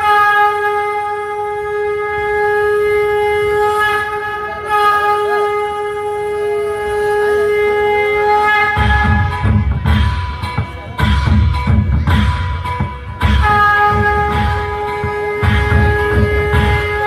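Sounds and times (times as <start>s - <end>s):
conch shell blown: 0.0s - 10.3s, 12.7s - 17.0s
drumming: 8.7s - 17.0s.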